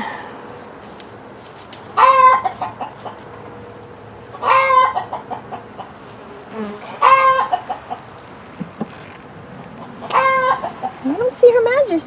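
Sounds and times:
honeybees humming: 0.0 - 12.0
chicken squawking and clucking: 2.0 - 3.4, 4.3 - 6.0, 6.8 - 8.2, 9.8 - 11.0.

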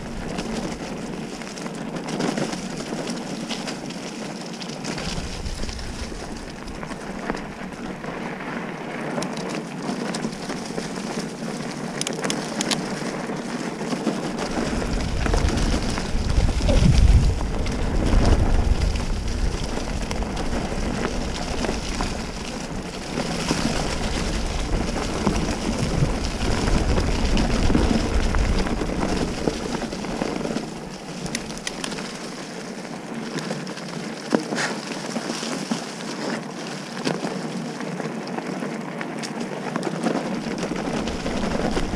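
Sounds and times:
bike tyres crunching on trail: 0.0 - 41.9
deep rumble: 14.4 - 30.3.

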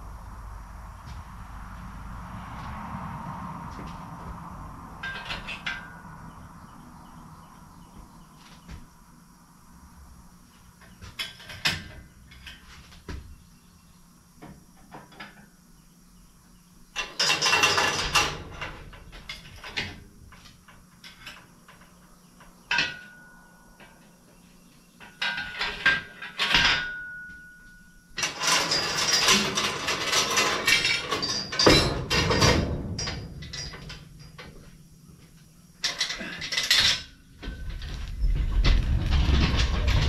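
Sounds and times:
metal clanks and creaks: 3.6 - 9.0, 10.6 - 13.4, 14.4 - 15.6, 16.9 - 40.0
loud metal clattering: 28.2 - 34.5, 35.9 - 40.0.

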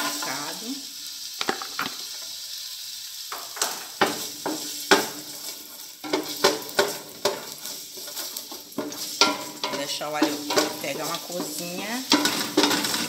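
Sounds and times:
garlic sizzling in oil: 0.0 - 13.0
wooden spoon scraping a pot: 3.6 - 13.0.

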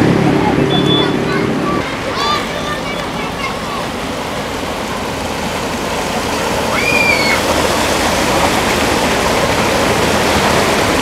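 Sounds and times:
car engines running: 0.0 - 11.0
tyres splashing through floodwater: 0.0 - 11.0
brief high-pitched tone: 0.6 - 1.3.

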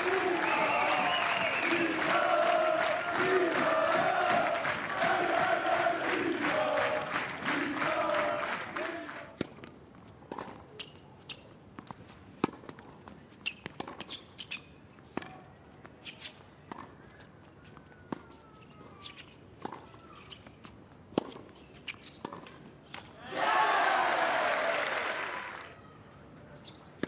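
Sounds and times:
crowd applause: 0.0 - 9.2, 23.4 - 25.8
tennis ball bouncing on hard court: 11.8 - 14.1.

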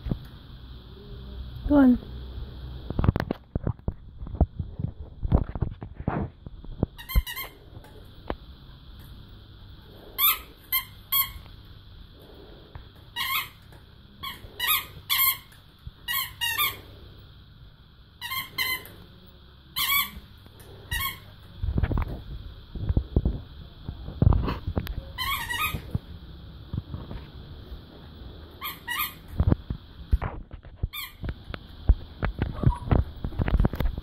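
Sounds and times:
squeaky toy squeaks: 7.0 - 7.5, 18.2 - 18.9, 19.8 - 20.2, 25.2 - 25.8, 28.6 - 29.2, 30.9 - 31.2.

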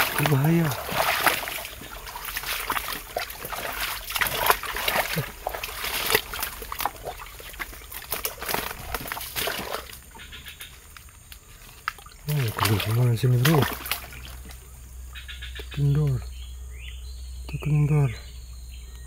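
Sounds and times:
scattered crackles: 0.0 - 14.7
feet splashing through shallow water: 0.0 - 15.3.

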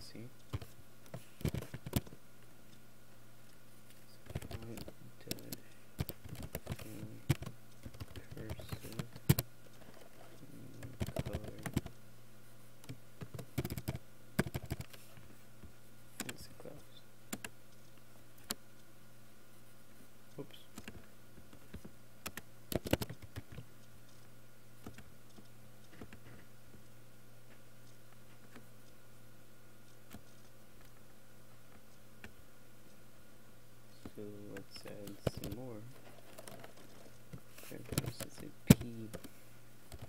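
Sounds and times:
low steady hum: 0.0 - 40.0
typing on computer keyboard: 1.4 - 2.2, 4.2 - 10.0, 10.7 - 12.0, 12.8 - 15.0, 21.7 - 23.7, 34.6 - 37.2, 37.8 - 39.3.

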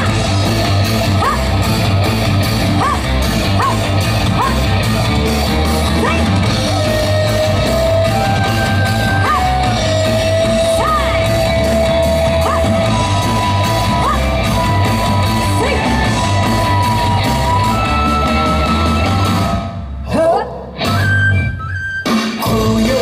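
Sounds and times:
dance music over loudspeakers: 0.0 - 19.8
people yelling: 2.7 - 4.9, 5.9 - 19.5.

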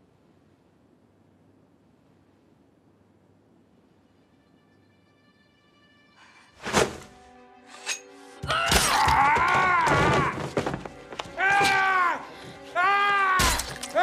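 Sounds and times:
strained cries of pain: 8.4 - 10.6, 11.2 - 14.0.

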